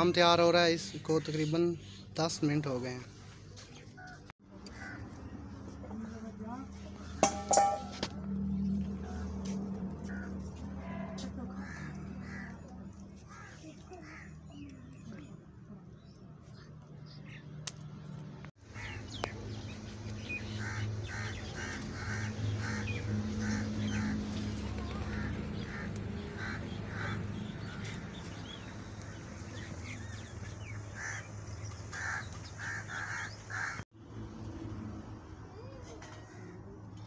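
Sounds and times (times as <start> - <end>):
crows cawing: 4.0 - 5.4, 10.0 - 14.7, 18.6 - 19.3, 20.3 - 33.8.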